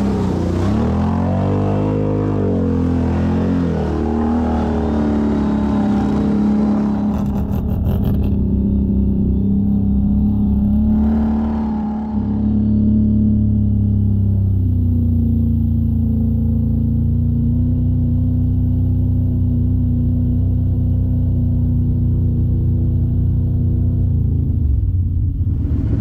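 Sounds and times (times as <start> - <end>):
atv engine revving: 0.0 - 26.0.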